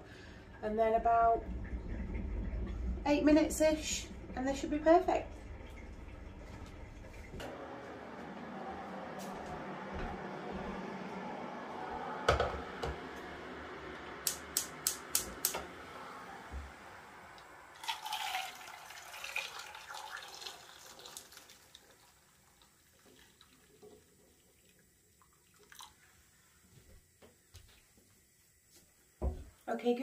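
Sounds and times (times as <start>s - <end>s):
water pouring from a kettle: 17.7s - 26.3s.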